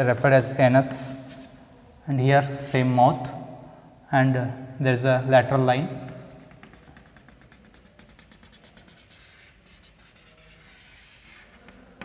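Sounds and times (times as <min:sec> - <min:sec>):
chalk scratching on chalkboard: 0:00.0 - 0:01.6, 0:02.4 - 0:03.0, 0:06.1 - 0:11.8.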